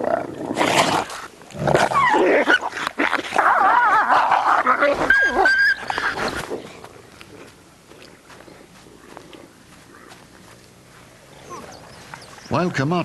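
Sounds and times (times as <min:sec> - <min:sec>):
wolf whining and yelping: 0:01.8 - 0:06.7, 0:11.4 - 0:12.4
wolves snarling: 0:11.3 - 0:12.3.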